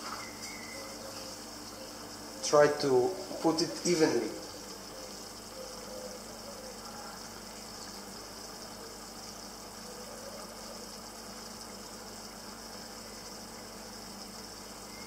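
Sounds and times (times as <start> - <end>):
low even hum: 0.0 - 15.0.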